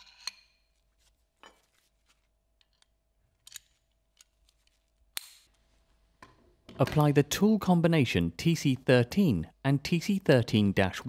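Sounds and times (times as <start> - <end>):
metallic clicks of locking tool: 2.7 - 5.5.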